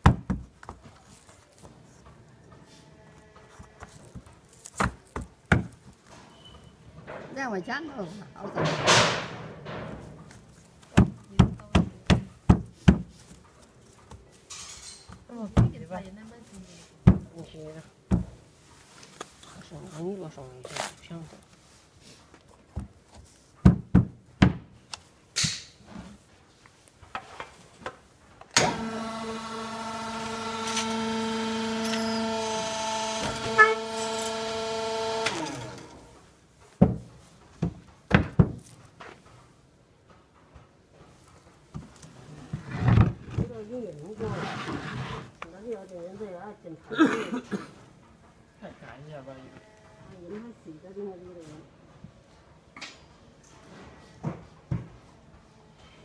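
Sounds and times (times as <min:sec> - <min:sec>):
cardboard tubes knocking on wood: 0:00.0 - 0:00.8, 0:04.2 - 0:05.8, 0:10.9 - 0:13.2, 0:17.0 - 0:17.3, 0:23.6 - 0:24.6
electric pump humming: 0:28.6 - 0:36.2.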